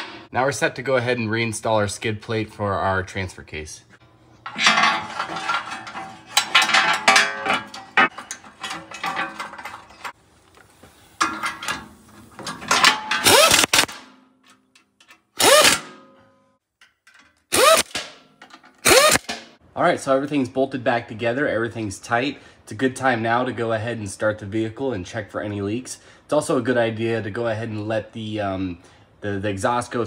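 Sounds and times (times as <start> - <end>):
metal plate clanking and scraping: 0.0 - 0.3, 4.4 - 10.2, 11.1 - 17.4
cordless ratchet whining: 13.2 - 13.9, 15.4 - 15.8, 17.5 - 18.0, 18.8 - 19.3.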